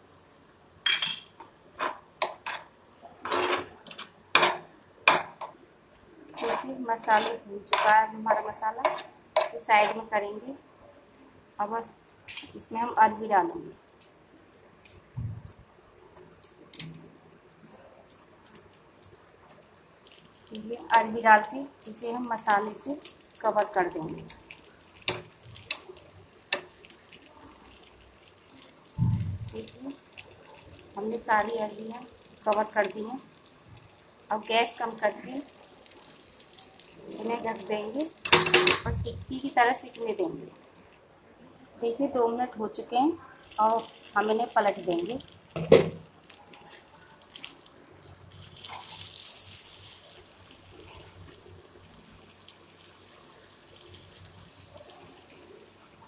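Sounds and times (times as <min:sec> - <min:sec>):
metal spoon scraping frying pan: 0:01.8 - 0:04.6, 0:06.3 - 0:10.1
dull low thump: 0:29.0 - 0:29.5.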